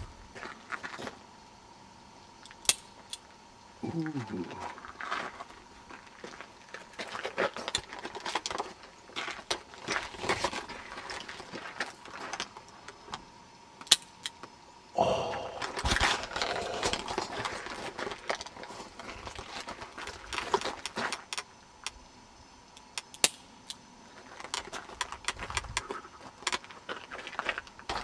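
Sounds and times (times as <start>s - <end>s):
handgun metallic clicks: 2.4s - 3.2s, 22.9s - 23.8s.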